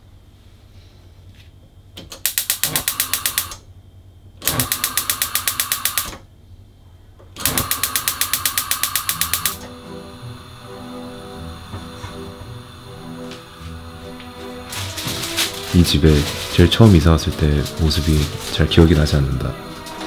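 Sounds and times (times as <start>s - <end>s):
gas stove igniter clicking: 2.0s - 3.6s, 4.4s - 6.2s, 7.4s - 14.8s.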